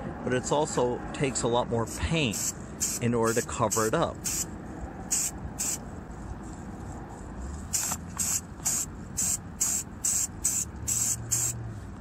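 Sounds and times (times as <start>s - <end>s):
aerosol spray can hissing: 2.3s - 4.5s, 5.1s - 5.8s, 7.7s - 11.6s.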